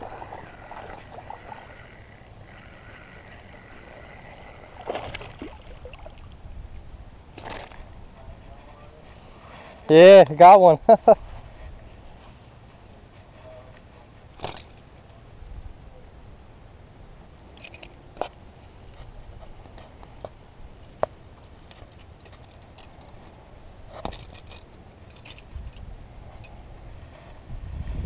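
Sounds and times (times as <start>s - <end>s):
metal lure hardware jingling: 0.1s - 5.4s, 7.3s - 10.5s, 12.8s - 16.6s, 17.3s - 26.8s.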